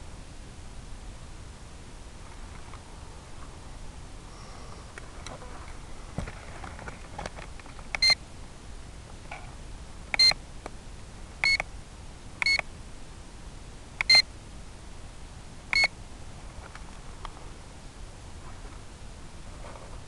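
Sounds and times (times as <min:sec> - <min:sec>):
steady hiss: 0:00.0 - 0:20.0
electronic warning beeps: 0:08.0 - 0:08.2, 0:10.2 - 0:10.4, 0:11.4 - 0:11.6, 0:12.4 - 0:12.6, 0:14.0 - 0:14.3, 0:15.7 - 0:15.9.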